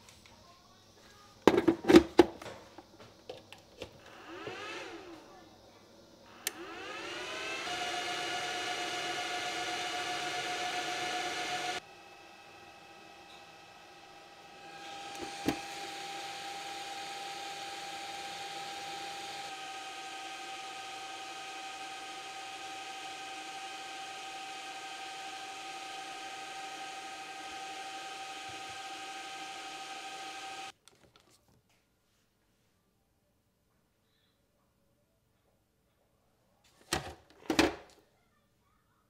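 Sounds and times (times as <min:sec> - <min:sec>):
charger cooling fan whine: 0:06.2 - 0:30.7.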